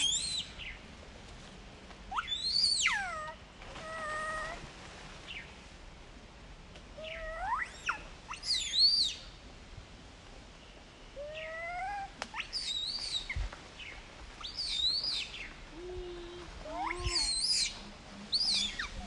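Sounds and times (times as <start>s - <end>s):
baby monkey shrill squeals: 0.0s - 0.4s, 2.1s - 3.3s, 7.1s - 9.2s, 11.3s - 13.3s, 14.4s - 15.2s, 16.7s - 19.0s.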